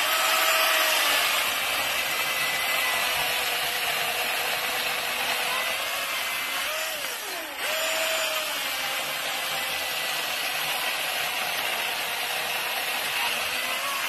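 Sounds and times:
chainsaw cutting through a log: 0.0s - 14.0s.

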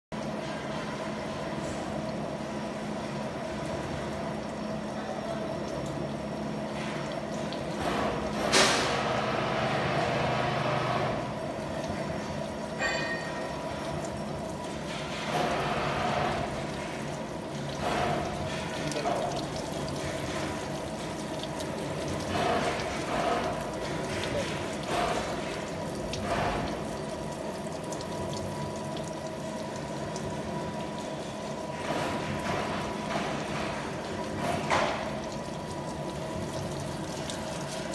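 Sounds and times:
gear-cutting machine humming: 7.7s - 37.9s.

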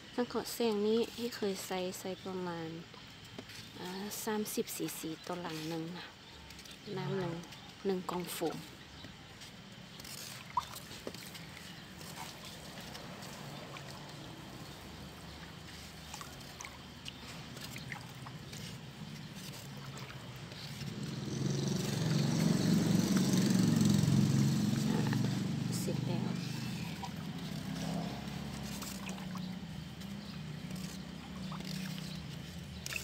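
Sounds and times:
water sloshing and trickling: 0.1s - 33.0s
small water splashes: 9.9s - 33.0s
vehicle engine running: 19.4s - 33.0s.

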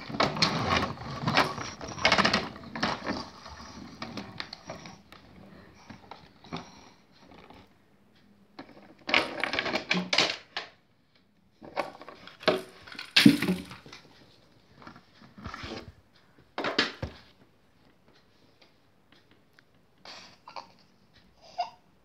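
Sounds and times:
plastic toys clattering on wooden table: 0.0s - 4.8s, 8.6s - 10.8s, 11.6s - 14.0s.

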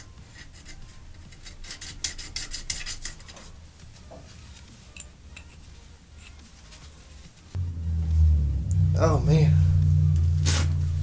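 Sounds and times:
metal clinking and scraping: 0.0s - 3.6s, 4.2s - 6.8s.

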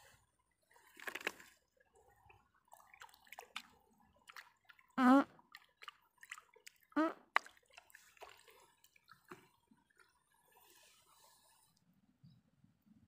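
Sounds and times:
water dripping and splashing: 0.8s - 10.6s.

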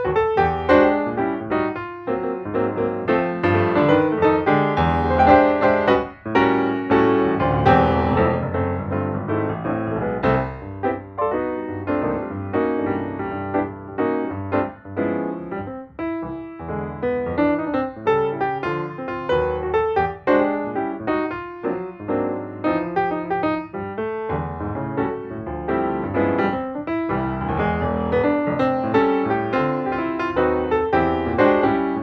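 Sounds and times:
lively piano music: 0.0s - 32.0s.

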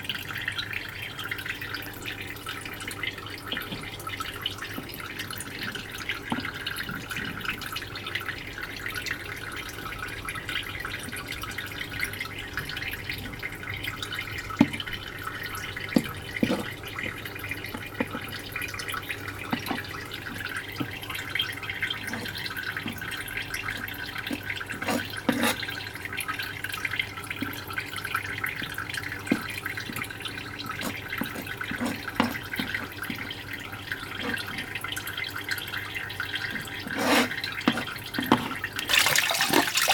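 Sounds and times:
water running and dripping: 0.0s - 39.9s
knife on plastic cutting board: 24.8s - 25.6s, 36.8s - 38.5s.

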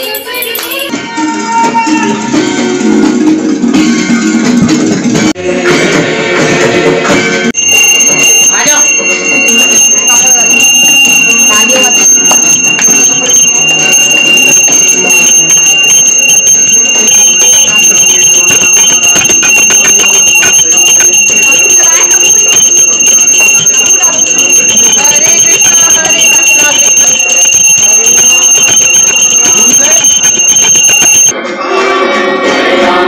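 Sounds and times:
hand bell ringing: 0.0s - 0.9s, 7.6s - 31.3s.

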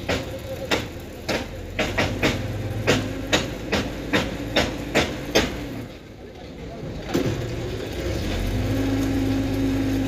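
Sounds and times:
sharp knocks: 0.0s - 5.8s
engine humming: 0.0s - 10.0s.

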